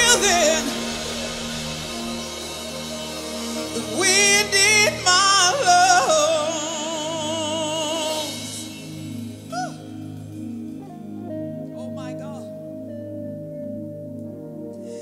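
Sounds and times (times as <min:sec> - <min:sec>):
woman singing with vibrato: 0:00.0 - 0:02.2
sustained backing chords: 0:00.0 - 0:15.0.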